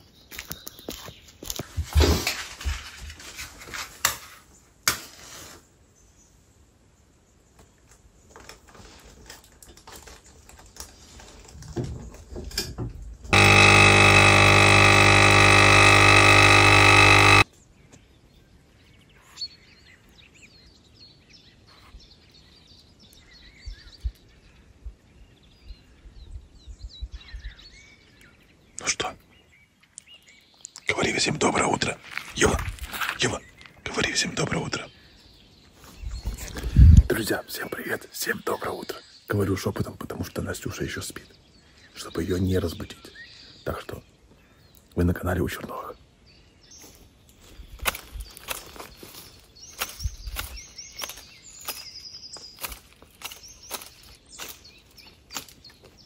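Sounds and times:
coffee machine pump humming: 13.3s - 17.4s.

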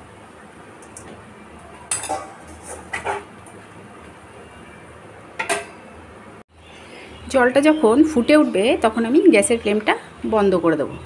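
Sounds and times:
metal skimmer clinking against pot: 1.9s - 3.3s.

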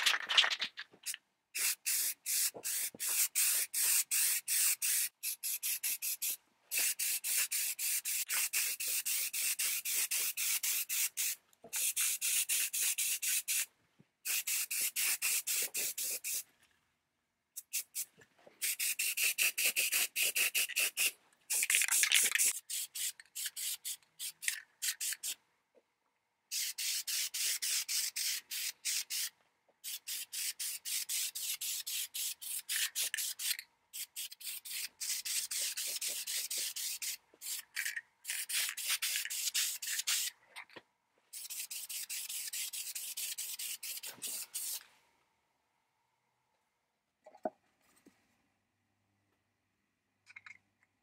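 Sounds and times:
spray paint can hissing: 1.6s - 16.4s, 17.6s - 25.4s, 26.5s - 40.3s, 41.3s - 44.8s.

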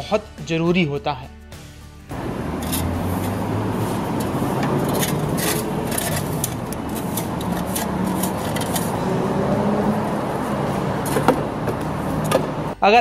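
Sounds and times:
shovel and broom scraping concrete: 2.2s - 12.4s.

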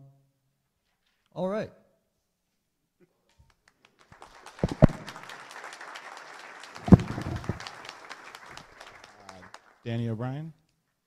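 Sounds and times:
audience applauding: 3.6s - 10.1s
loud thumps: 4.6s - 5.1s, 6.8s - 7.7s.

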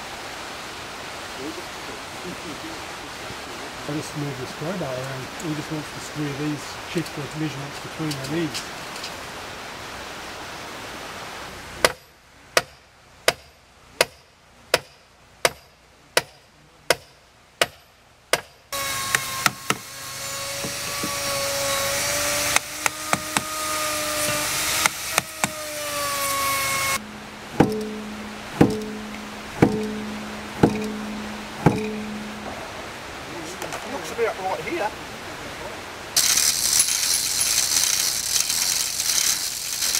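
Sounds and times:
loud hiss with wavering tone: 0.0s - 15.3s, 18.7s - 39.9s
hammer striking heavy timber: 11.8s - 32.6s.

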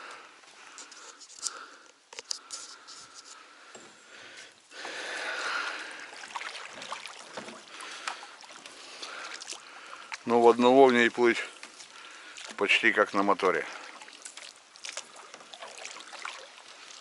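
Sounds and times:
oars splashing in water: 4.7s - 17.0s.

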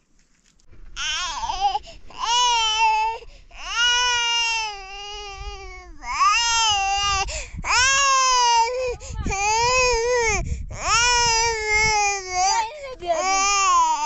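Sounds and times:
toddler crying: 1.0s - 14.0s.

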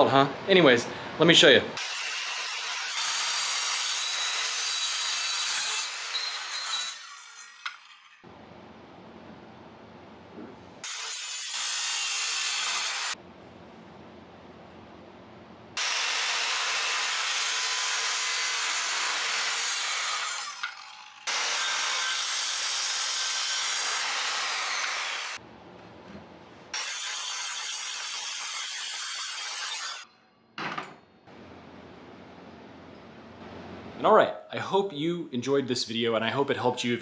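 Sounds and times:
circular saw cutting: 1.8s - 8.3s, 10.8s - 13.2s, 15.8s - 25.4s, 26.7s - 30.1s.

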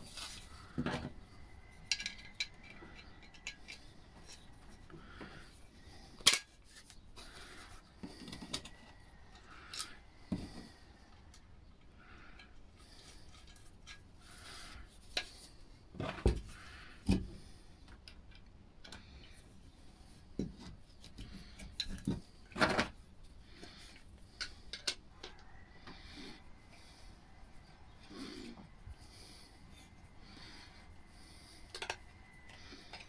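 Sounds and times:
clicks taps and rubbing of fittings: 1.8s - 5.4s, 13.3s - 19.5s, 20.3s - 23.0s, 23.6s - 26.0s.

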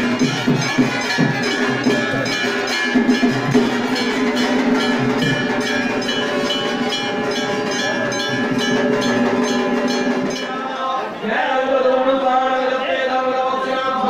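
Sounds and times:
temple bells ringing: 0.0s - 11.1s.

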